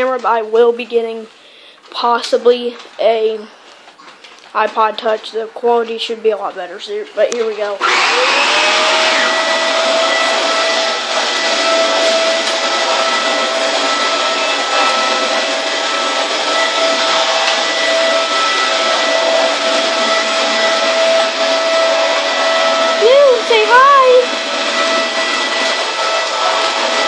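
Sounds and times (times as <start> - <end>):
upright vacuum cleaner running: 7.6 - 27.0.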